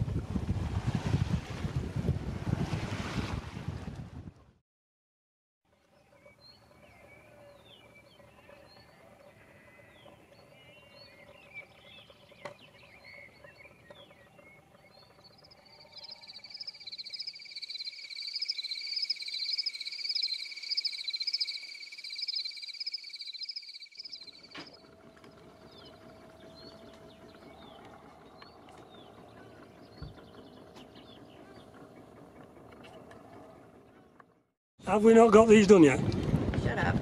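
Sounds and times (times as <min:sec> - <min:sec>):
bird chirps: 0:06.0 - 0:33.0
rapidly pulsing high trill: 0:14.5 - 0:24.5.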